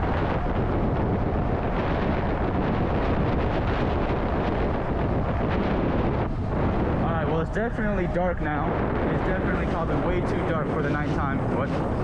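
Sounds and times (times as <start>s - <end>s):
road rumble: 0.0s - 12.0s
wind rushing: 0.0s - 12.0s.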